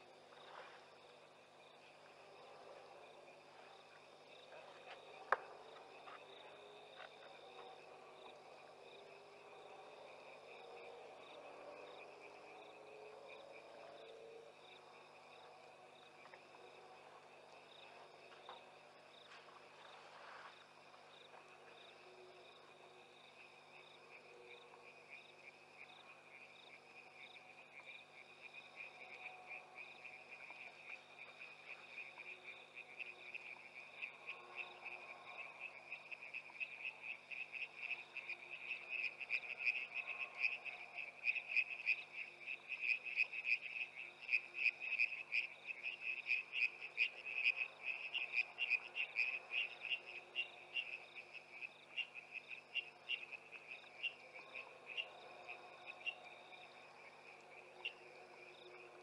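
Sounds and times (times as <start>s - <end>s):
frogs rapid pulsed calls: 23.2s - 59.0s.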